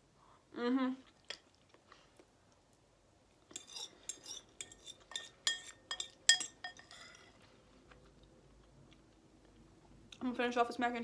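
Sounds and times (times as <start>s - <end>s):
fork clinking on ceramic bowl: 3.5s - 7.3s.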